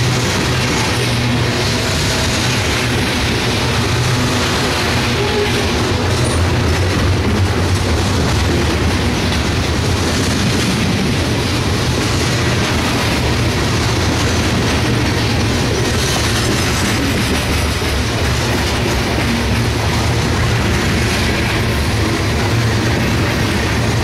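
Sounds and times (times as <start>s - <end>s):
freight train wheels on rails: 0.0s - 24.0s.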